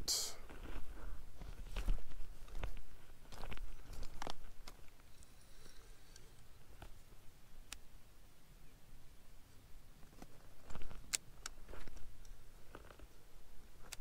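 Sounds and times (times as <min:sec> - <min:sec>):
footsteps on gravel: 0:00.5 - 0:04.6.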